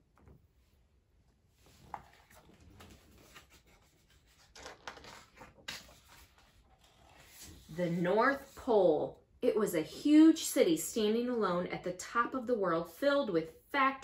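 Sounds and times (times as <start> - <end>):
book pages rustling: 1.6 - 8.7.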